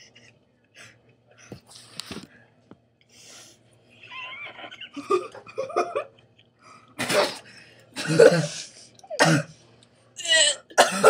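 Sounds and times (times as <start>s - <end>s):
person coughing: 7.0s - 9.6s, 10.2s - 11.0s.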